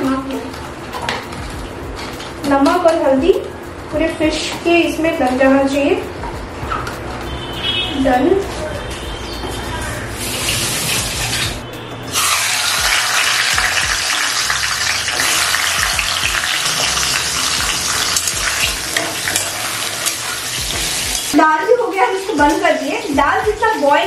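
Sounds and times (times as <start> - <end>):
fish frying in hot oil: 10.2 - 21.4.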